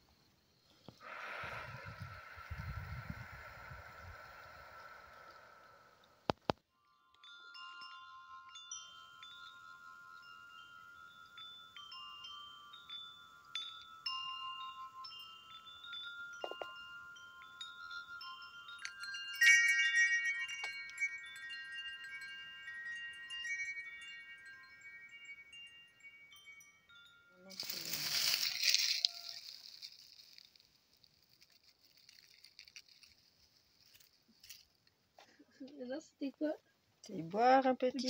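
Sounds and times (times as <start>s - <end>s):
metallic chimes ringing: 6.8s - 30.6s.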